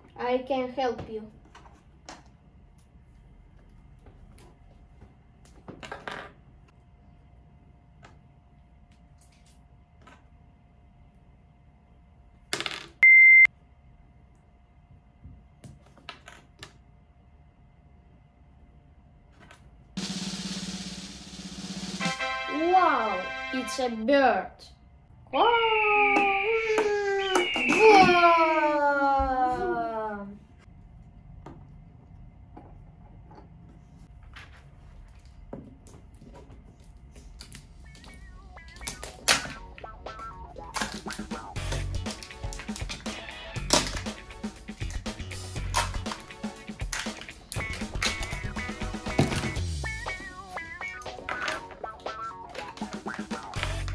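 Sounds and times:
loud electronic beep: 25.8 - 28.3
plastic toys clicking and tapping: 40.6 - 44.2, 46.8 - 48.4.

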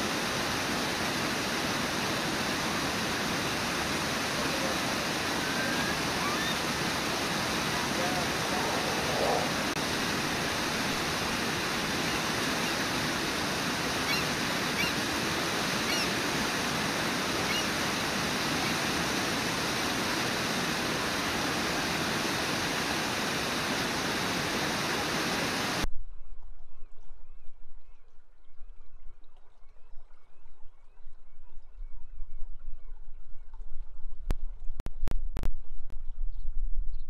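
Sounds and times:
waterfall rushing: 0.0 - 25.8.

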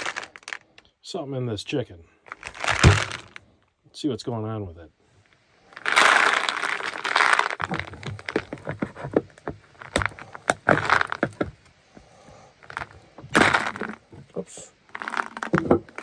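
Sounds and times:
marbles rattling in figurine: 0.0 - 0.7, 5.7 - 8.6, 12.7 - 14.0, 14.9 - 16.0
rustling: 0.0 - 0.9, 2.2 - 3.6, 5.1 - 16.0.

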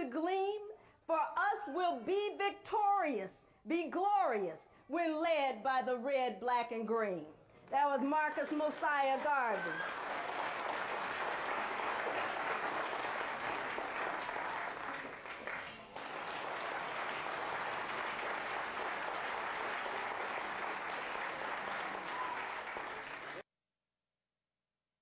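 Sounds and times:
audience applauding: 8.2 - 23.4.

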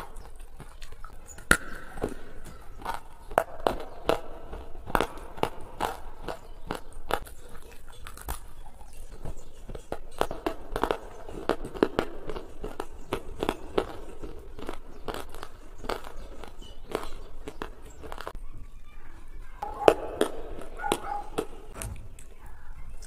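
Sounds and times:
person chewing crunchy food: 0.0 - 18.4.

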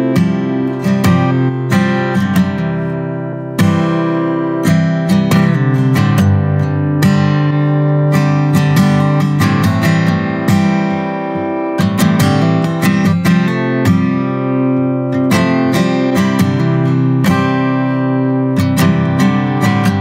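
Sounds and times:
acoustic guitar strumming chords: 0.0 - 20.0.

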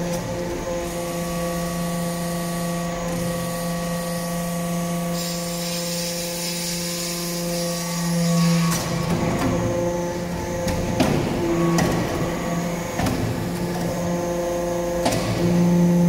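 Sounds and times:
hydraulic unit humming whine: 0.0 - 16.0
hiss: 5.0 - 8.9.

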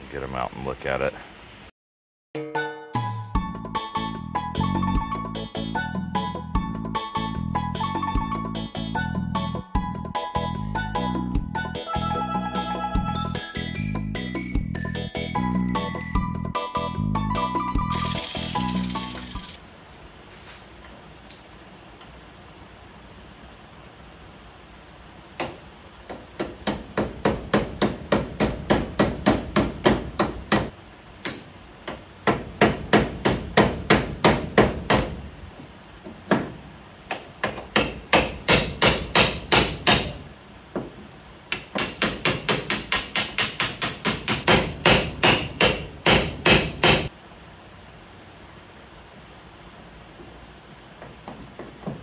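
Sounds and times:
hammer striking steel: 25.4 - 35.2, 37.1 - 40.2, 41.5 - 47.1.

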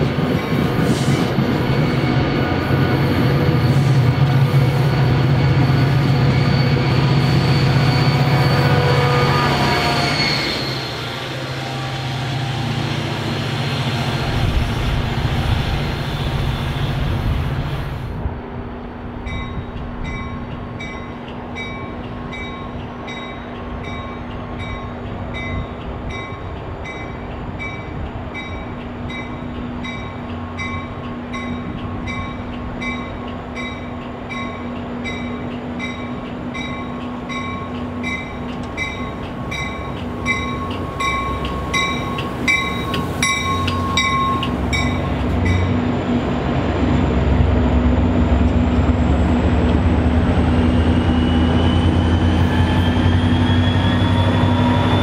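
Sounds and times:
train wheels squealing on rails: 0.0 - 18.3, 19.2 - 55.0
diesel train engine drone: 0.0 - 55.0
train engine hum: 0.0 - 55.0
train bell ringing: 1.6 - 12.6, 19.2 - 45.9.

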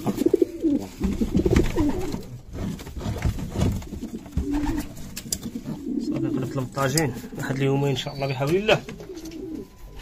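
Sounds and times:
pigeons cooing: 0.0 - 2.4, 3.8 - 7.6, 8.8 - 10.0.

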